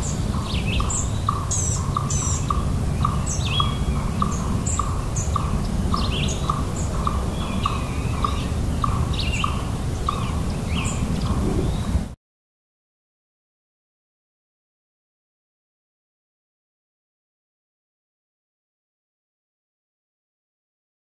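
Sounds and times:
low background rumble: 0.0 - 12.1
songbirds chirping and whistling: 0.0 - 12.1
owl tooting: 0.3 - 11.9.

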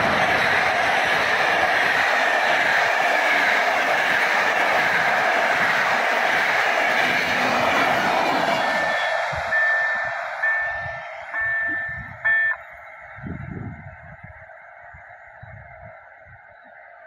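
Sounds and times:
train rumble: 0.0 - 14.5
crossing signal electronic beeps: 8.5 - 13.4.

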